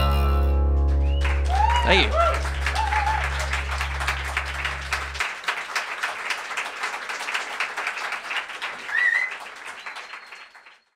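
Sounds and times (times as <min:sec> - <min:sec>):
audience applauding: 0:00.8 - 0:10.9
rising whistle: 0:01.0 - 0:05.2.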